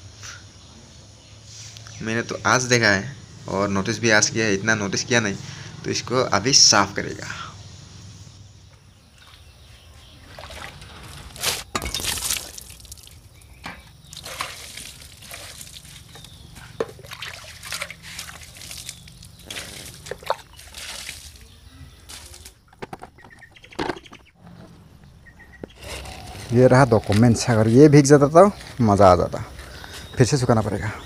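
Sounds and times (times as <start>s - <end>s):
water splashing on motorcycle: 14.0s - 21.5s.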